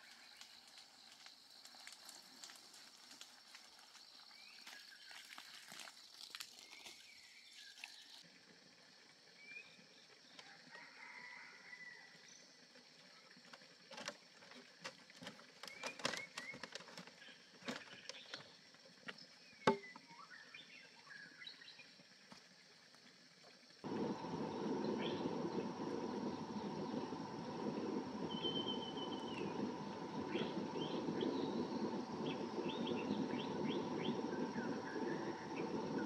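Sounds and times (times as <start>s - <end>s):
bamboo poles knocking: 19.7s - 19.9s
birds chirping: 23.8s - 36.0s.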